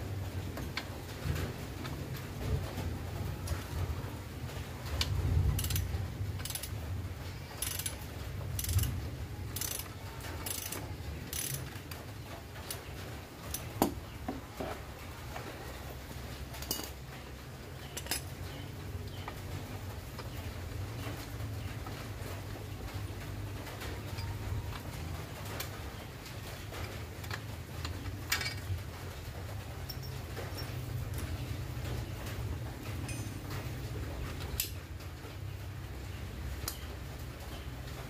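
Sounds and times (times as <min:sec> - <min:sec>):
ratchet wrench clicking: 0:05.6 - 0:06.7, 0:07.6 - 0:08.0, 0:08.6 - 0:08.9, 0:09.5 - 0:11.8.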